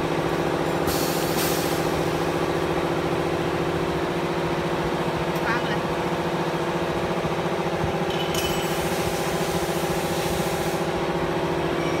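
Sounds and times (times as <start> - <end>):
hiss: 0.8 - 1.9, 8.6 - 11.0.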